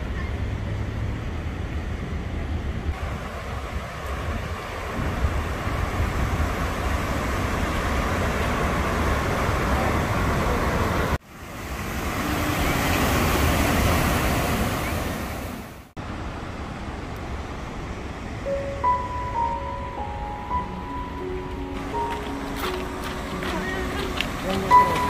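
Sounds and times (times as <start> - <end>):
river rushing through rapids: 2.9 - 18.4, 21.2 - 25.0.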